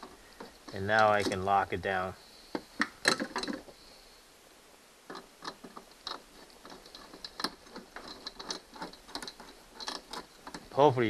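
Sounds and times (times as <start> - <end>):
screw being tightened clicking: 2.5 - 3.7, 5.1 - 10.7.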